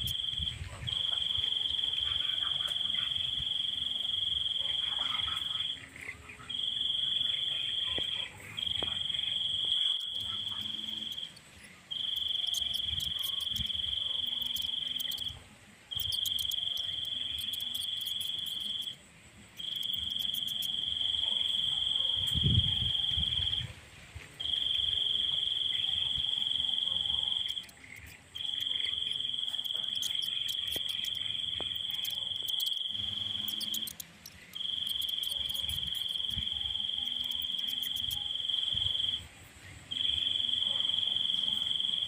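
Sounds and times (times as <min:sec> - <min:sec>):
insect trilling: 0:00.0 - 0:19.0, 0:19.6 - 0:23.7, 0:24.4 - 0:39.3, 0:39.9 - 0:42.0
fast high ticking: 0:12.0 - 0:15.3, 0:16.0 - 0:18.9, 0:27.4 - 0:38.2.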